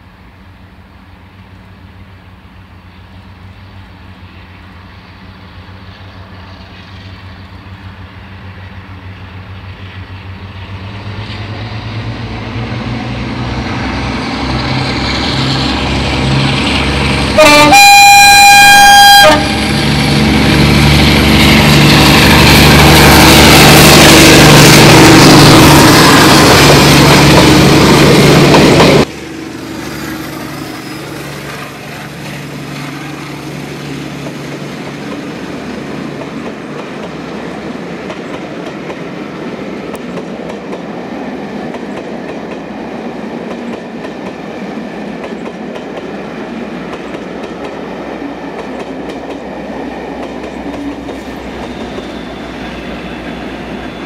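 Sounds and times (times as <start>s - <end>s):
diesel locomotive engine: 0.0s - 54.0s
locomotive horn: 17.3s - 30.8s.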